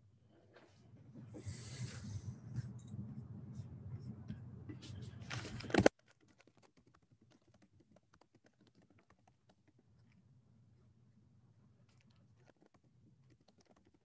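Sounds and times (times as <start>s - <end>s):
low hum: 0.6s - 5.8s.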